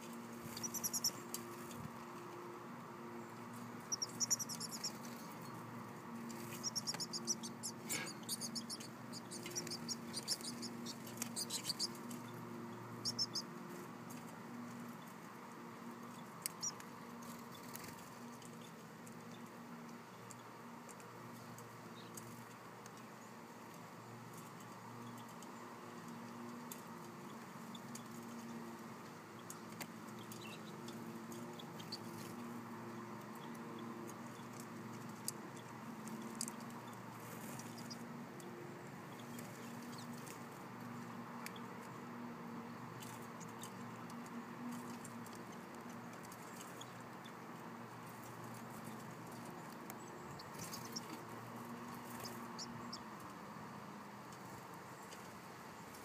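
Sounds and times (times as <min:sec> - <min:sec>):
steady low hum: 0:00.0 - 0:56.0
faint high bird chirps: 0:00.5 - 0:01.2, 0:03.8 - 0:05.5, 0:06.4 - 0:12.3, 0:13.0 - 0:13.5, 0:50.0 - 0:51.1
beaks and claws tapping metal: 0:06.2 - 0:12.4.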